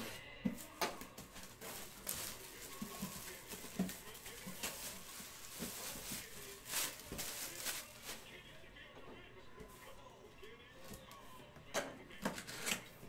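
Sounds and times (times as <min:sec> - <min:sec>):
cardboard boxes being handled: 0:00.5 - 0:08.2.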